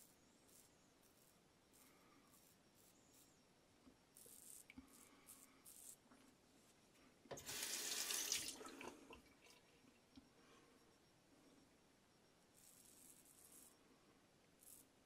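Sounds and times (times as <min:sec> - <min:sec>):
razor scraping stubble: 0:00.0 - 0:03.4, 0:04.1 - 0:06.0, 0:12.6 - 0:13.8, 0:14.6 - 0:15.0
tap running water: 0:07.3 - 0:09.2.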